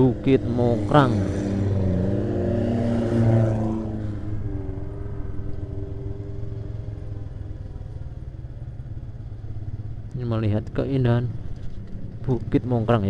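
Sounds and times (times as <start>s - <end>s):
car passing close: 0.0s - 5.6s
motorcycle engine running: 0.0s - 13.0s.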